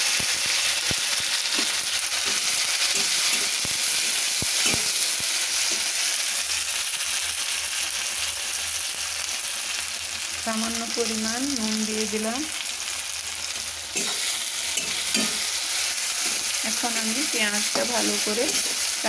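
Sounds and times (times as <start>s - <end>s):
onions sizzling in hot oil: 0.0s - 19.0s
metal spatula tapping and scraping: 1.5s - 5.0s, 13.9s - 15.5s, 17.7s - 18.8s.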